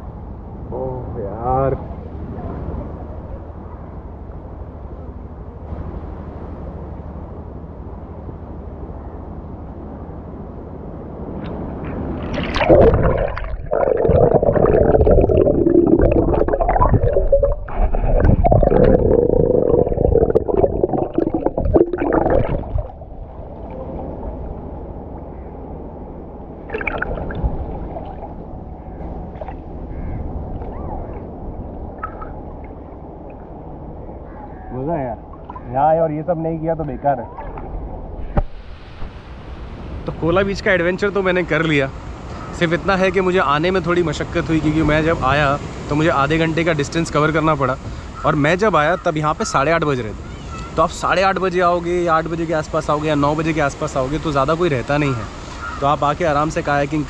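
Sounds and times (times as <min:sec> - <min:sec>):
steady wash of water: 0:11.4 - 0:25.4, 0:26.6 - 0:33.8, 0:38.3 - 0:57.0
underwater gurgling and bubbling: 0:12.3 - 0:23.8, 0:26.7 - 0:28.5.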